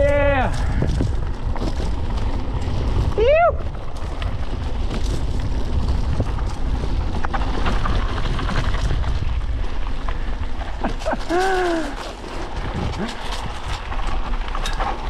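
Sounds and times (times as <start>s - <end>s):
bike rattling and knocking: 0.0s - 15.0s
bike tyres rumbling on dirt: 0.0s - 15.0s
wind buffeting microphone: 0.0s - 15.0s.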